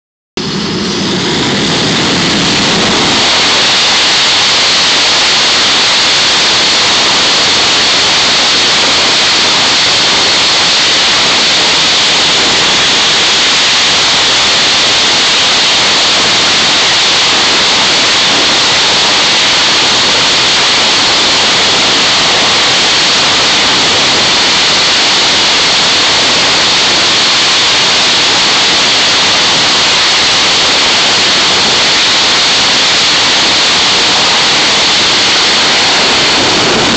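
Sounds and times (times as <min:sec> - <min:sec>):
jet engines roaring: 0:00.4 - 0:36.9.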